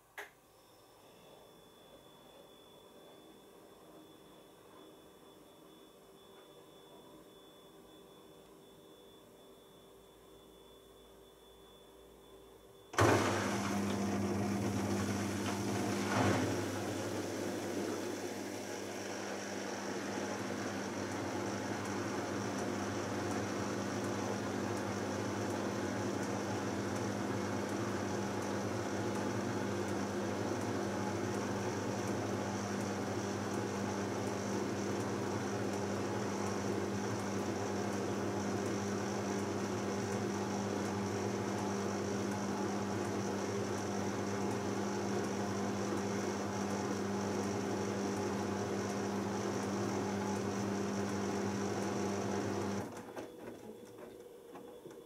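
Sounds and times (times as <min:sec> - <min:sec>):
washing machine spinning: 0:12.9 - 0:55.0.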